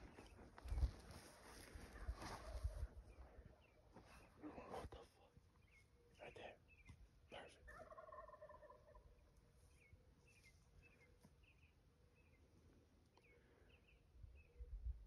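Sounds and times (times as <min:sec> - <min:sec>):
distant turkey gobble: 0:07.7 - 0:09.1.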